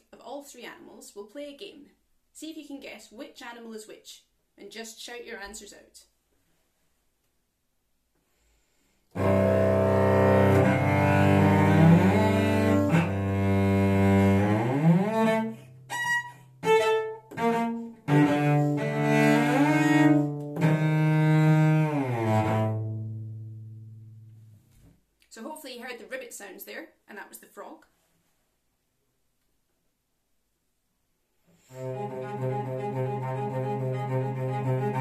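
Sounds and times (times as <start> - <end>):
solo cello playing: 9.1 - 24.6, 31.6 - 35.0.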